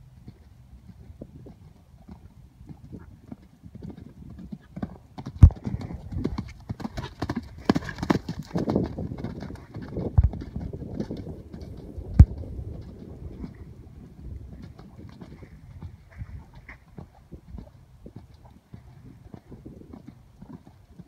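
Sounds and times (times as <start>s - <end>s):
horse hoofbeats on sand: 0.2s - 21.0s.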